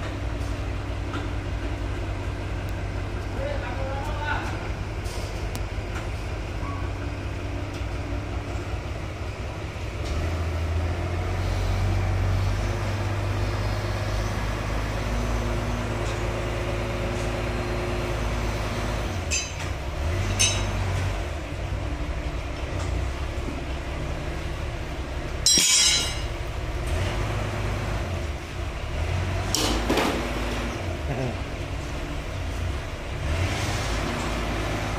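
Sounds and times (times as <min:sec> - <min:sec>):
heavy diesel engine running: 0:00.0 - 0:34.9
short metallic clinks: 0:19.3 - 0:19.7, 0:20.3 - 0:20.7, 0:25.4 - 0:26.3.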